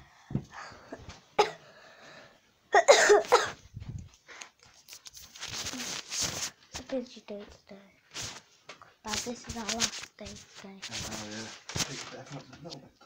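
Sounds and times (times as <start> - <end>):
person coughing: 1.4 - 1.6, 2.7 - 3.6.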